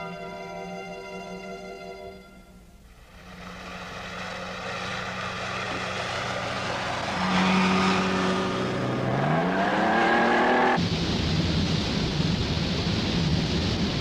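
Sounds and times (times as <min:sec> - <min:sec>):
cartoon motorboat engine: 0:03.0 - 0:10.7.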